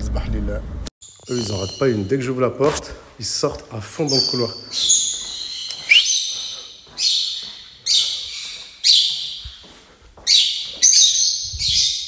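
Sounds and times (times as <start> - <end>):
conures screeching with echo: 1.0 - 2.4, 3.9 - 12.0.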